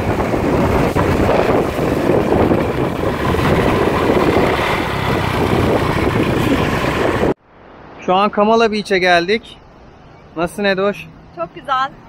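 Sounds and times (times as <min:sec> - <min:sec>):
motorbike running: 0:00.0 - 0:07.4
wind rushing over microphone: 0:00.0 - 0:10.4.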